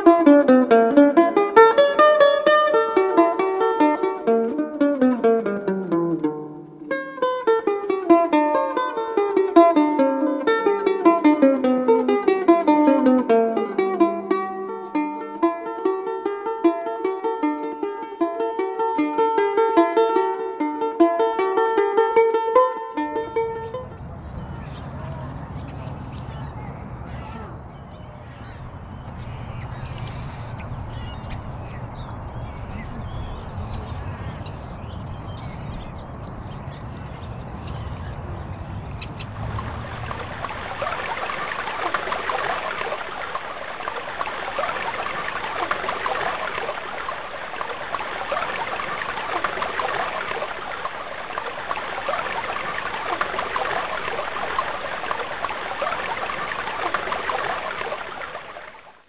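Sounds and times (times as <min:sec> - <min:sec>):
water rushing over rocks: 0:39.2 - 0:59.0.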